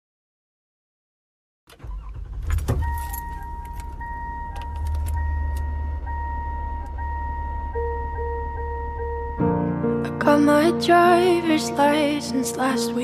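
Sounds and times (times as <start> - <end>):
low engine rumble: 1.8 - 11.6
keys jangling: 2.4 - 5.7
car warning chime: 2.4 - 9.7.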